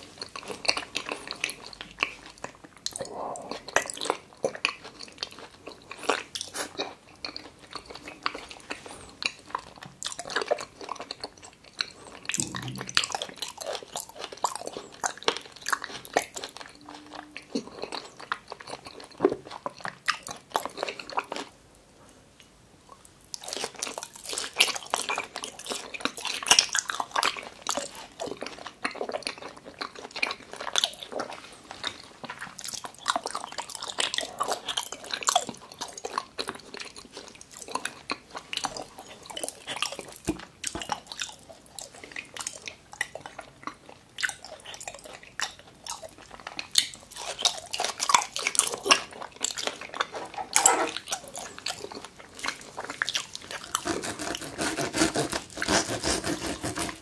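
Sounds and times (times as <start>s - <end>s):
wet chewing mouth sounds: 0.0s - 21.6s, 22.4s - 57.0s.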